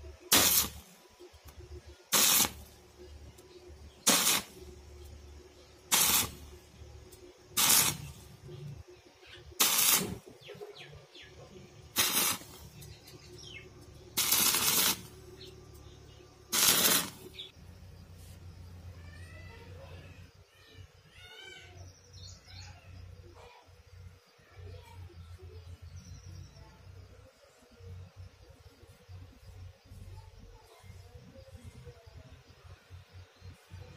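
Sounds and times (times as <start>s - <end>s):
birds chirping faintly: 0.0s - 33.9s
arc welding crackle: 0.1s - 8.8s, 9.5s - 10.5s, 11.8s - 17.5s.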